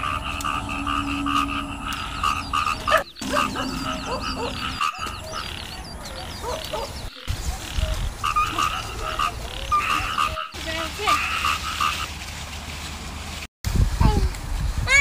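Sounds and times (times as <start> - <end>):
frogs croaking: 0.0 - 12.1.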